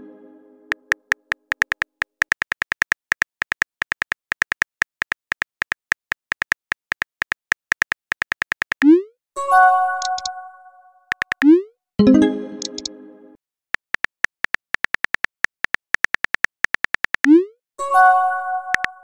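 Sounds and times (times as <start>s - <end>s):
phone keyboard clicks: 0.7s - 8.9s, 11.1s - 11.5s, 13.8s - 17.3s, 18.8s - 19.0s.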